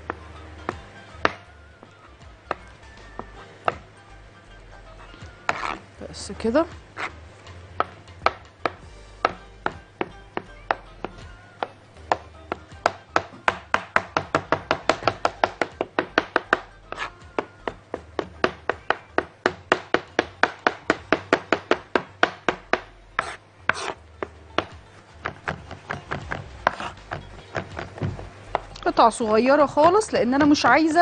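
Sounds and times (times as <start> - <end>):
knife chopping on wooden board: 2.5 - 3.9, 5.5 - 5.8, 6.9 - 7.2, 7.8 - 28.8.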